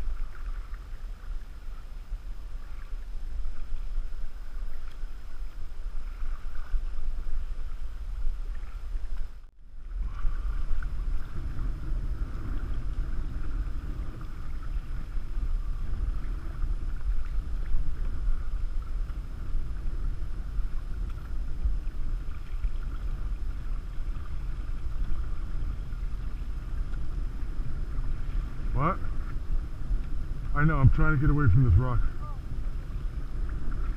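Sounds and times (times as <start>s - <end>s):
water lapping against canoe: 0.0s - 33.9s
wind buffeting microphone: 0.0s - 33.9s.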